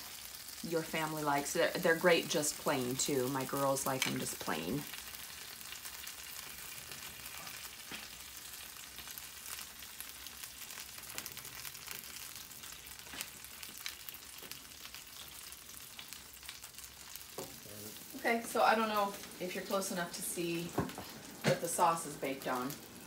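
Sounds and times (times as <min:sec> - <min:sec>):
chicken sizzling on a pan: 0:00.0 - 0:23.0.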